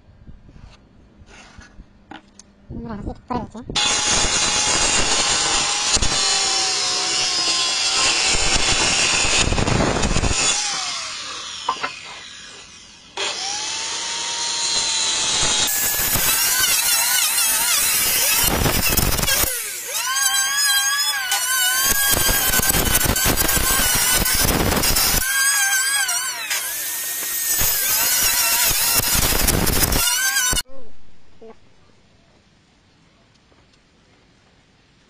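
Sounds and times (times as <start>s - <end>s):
circular saw cutting wood: 3.8s - 30.7s.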